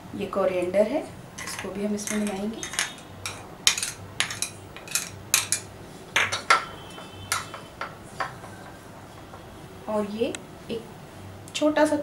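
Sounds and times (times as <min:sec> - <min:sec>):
metal spoon tapping bowls: 0:01.4 - 0:09.5.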